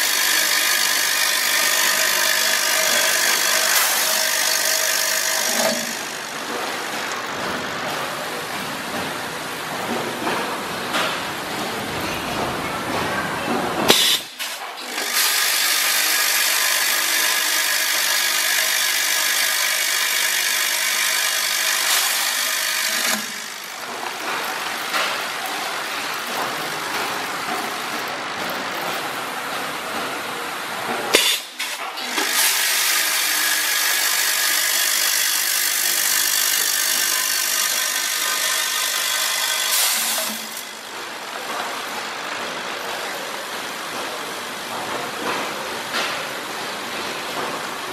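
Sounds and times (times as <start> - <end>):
filling machine running: 0.0 - 9.6, 13.8 - 44.3
air flushing hiss: 13.9 - 16.1.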